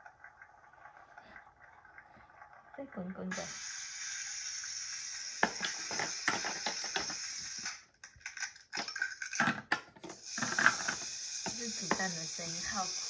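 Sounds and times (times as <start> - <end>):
toy stove sizzling sound effect: 3.0 - 13.0
plastic toy clicks and taps: 5.4 - 7.2, 8.8 - 12.2.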